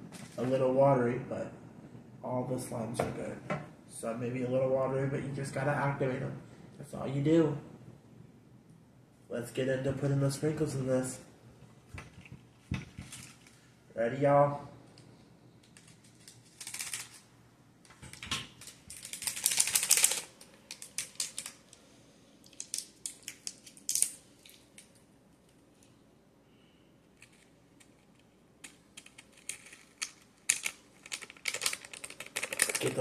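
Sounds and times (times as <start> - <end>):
plastic packet crinkling: 18.5 - 21.8, 29.1 - 33.0.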